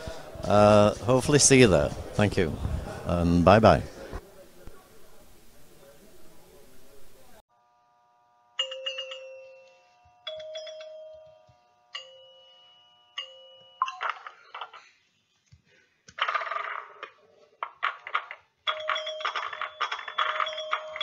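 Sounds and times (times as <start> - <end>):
bell-like chime tones: 8.6 - 14.0
overlapping ringing tones: 8.6 - 14.3, 18.7 - 21.0.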